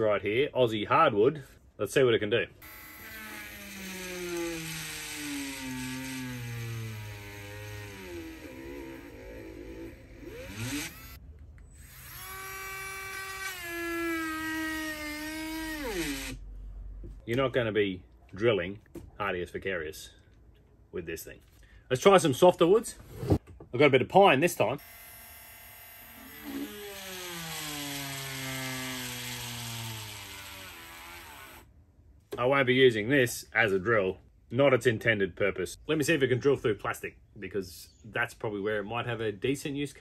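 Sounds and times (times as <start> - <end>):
rotary tool drilling into wood: 2.6 - 16.4, 24.8 - 31.7.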